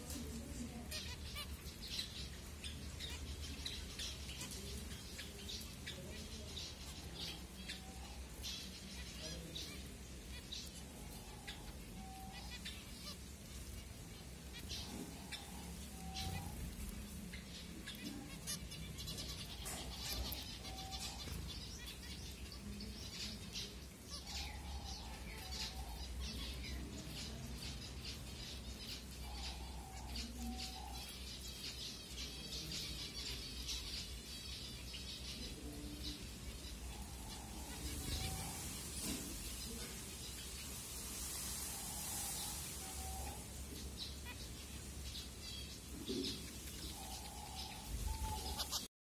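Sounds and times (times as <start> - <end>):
finches chirping: 0.0 - 48.9.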